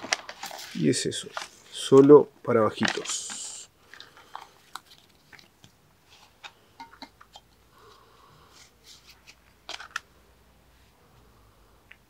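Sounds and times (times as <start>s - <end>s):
paper booklet rustling: 0.0s - 6.5s, 8.6s - 10.1s.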